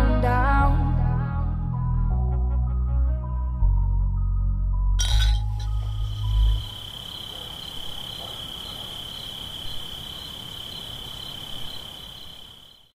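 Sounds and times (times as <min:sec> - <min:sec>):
crickets trilling: 0:05.0 - 0:12.9.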